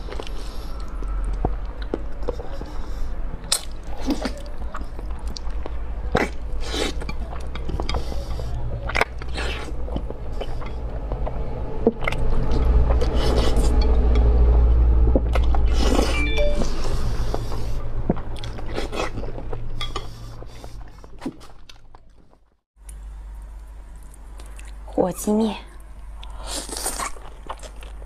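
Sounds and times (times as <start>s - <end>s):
chewing and mouth noises: 0.0s - 14.3s, 15.2s - 25.0s, 25.8s - 28.0s
steady low hum: 7.2s - 21.2s.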